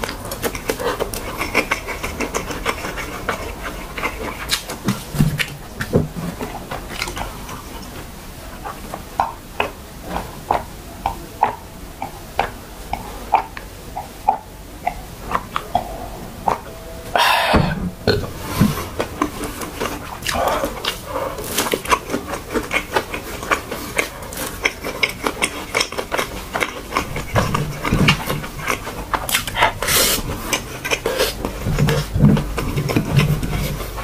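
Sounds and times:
wet chewing with smacks: 0.0s - 8.0s, 18.6s - 34.0s
loud breathy sound: 17.1s - 17.9s.

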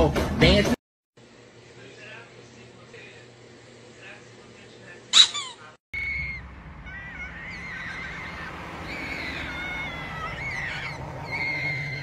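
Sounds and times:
child squealing: 5.2s - 12.0s
low rumble: 6.0s - 10.1s.

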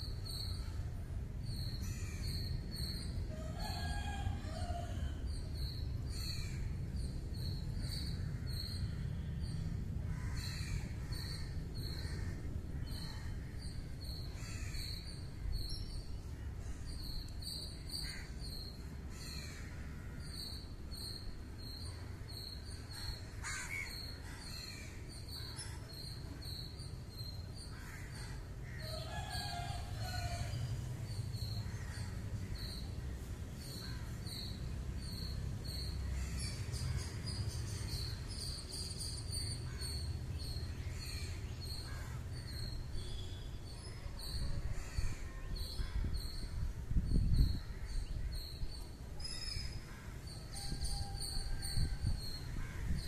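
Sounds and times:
crows cawing: 10.1s - 11.2s, 23.4s - 25.9s, 27.7s - 30.6s, 40.9s - 42.3s, 52.5s - 53.0s.

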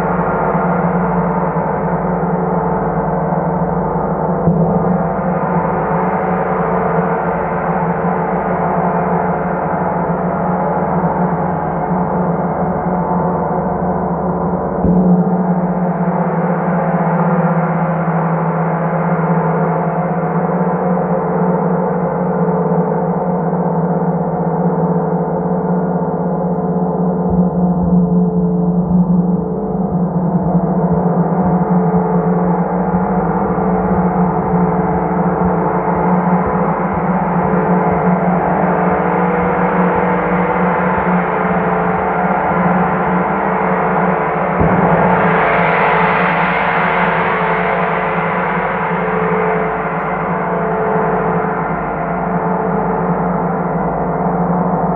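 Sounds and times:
large gong humming: 26.4s - 53.8s.

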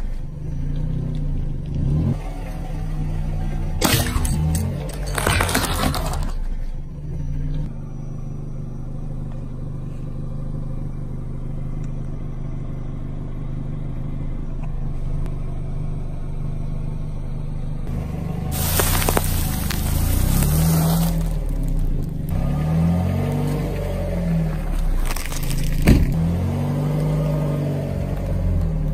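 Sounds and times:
car engine rolling slowly: 0.0s - 28.9s
plastic package crunching: 18.6s - 22.1s
tyre crushing egg shell: 18.6s - 22.1s, 25.0s - 25.9s.

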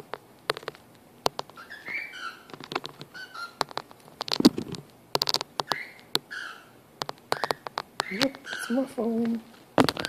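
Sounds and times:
beak and claws clicking: 0.0s - 10.0s
small bird chirping: 1.4s - 4.6s, 5.3s - 9.2s.

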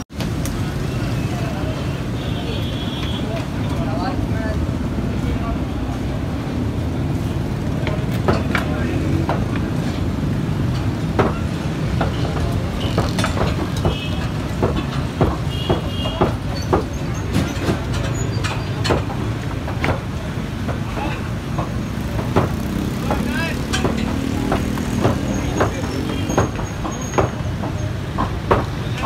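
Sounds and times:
rumble of traffic and crowd: 0.0s - 29.0s
knives knocking on wooden tables: 10.7s - 28.8s.

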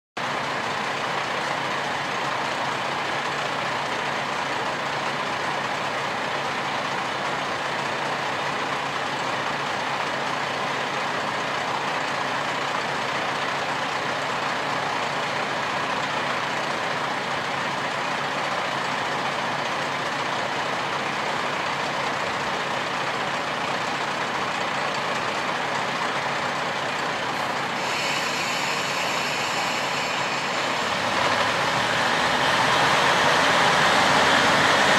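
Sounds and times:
diesel engine idling: 0.2s - 34.9s
high hiss: 27.5s - 31.4s.

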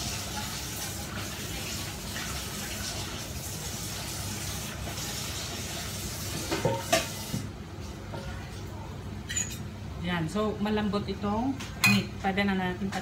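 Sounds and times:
food sizzling in a pan: 0.0s - 7.6s.

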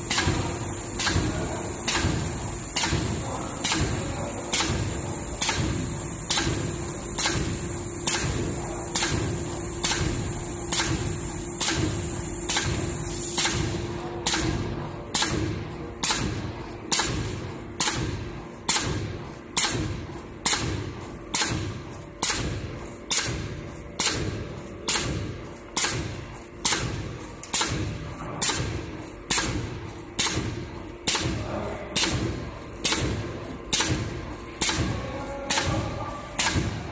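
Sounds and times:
machine thumping: 0.0s - 36.9s.

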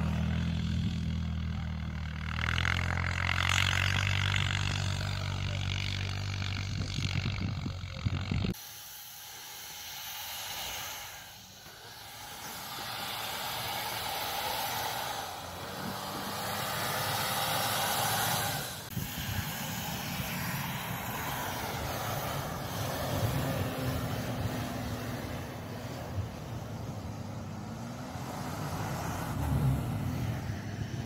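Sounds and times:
suv engine working hard: 0.0s - 31.0s
steady rushing noise: 6.6s - 31.0s
tyres spinning in snow: 9.5s - 31.0s.

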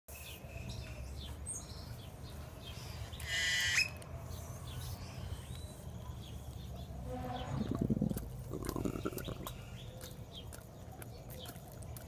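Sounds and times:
loud high chirp: 2.8s - 4.0s
lip-smacking: 7.6s - 12.0s
monkeys chewing biscuits: 7.7s - 12.0s.

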